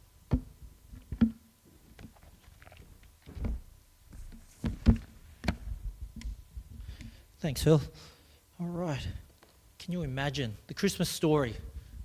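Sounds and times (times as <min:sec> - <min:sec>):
soft knocks and thumps: 0:03.2 - 0:06.3.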